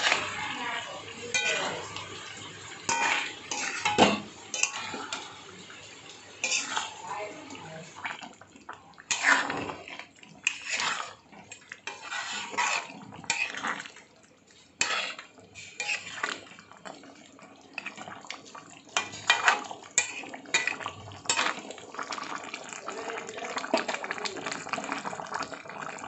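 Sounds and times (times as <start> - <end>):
metal ladle scraping a pot: 0.0 - 2.2, 2.8 - 5.4, 6.4 - 7.9, 9.0 - 14.0, 14.8 - 16.8, 17.8 - 18.2, 18.9 - 21.8.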